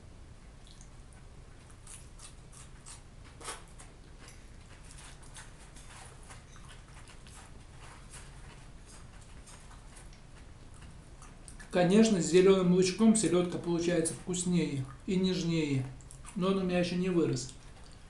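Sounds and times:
low steady hum: 0.0s - 18.0s
man chewing food: 0.5s - 12.4s, 13.2s - 16.7s, 17.4s - 18.0s
wet mouth clicks and smacks: 0.6s - 1.0s, 16.0s - 16.3s.

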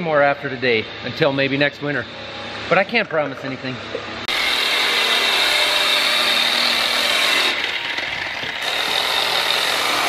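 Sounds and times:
rotary polisher whining: 4.3s - 10.0s.

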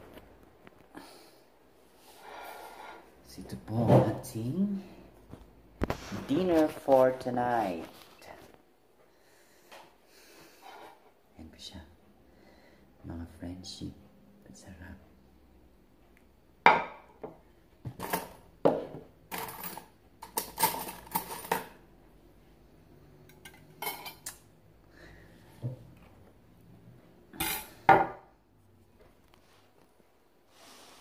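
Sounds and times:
metal spoon clinking on plate: 23.3s - 24.4s.

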